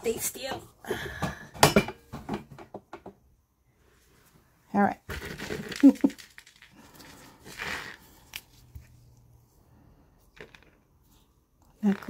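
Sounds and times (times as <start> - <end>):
jewelry rustling: 5.1 - 12.0.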